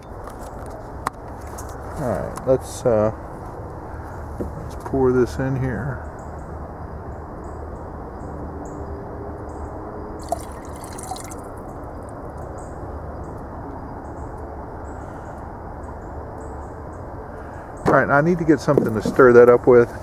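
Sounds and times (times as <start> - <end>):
liquid splashing and dripping: 10.2 - 11.8.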